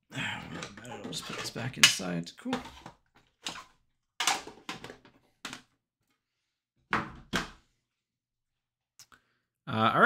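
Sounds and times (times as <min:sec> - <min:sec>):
cards and tin knocking and scraping: 0:00.5 - 0:05.7.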